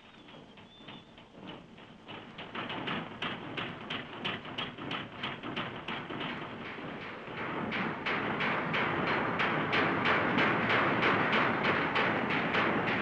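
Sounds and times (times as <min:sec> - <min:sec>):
general clatter: 0:00.0 - 0:13.0
metal hammering on steel: 0:02.2 - 0:13.0.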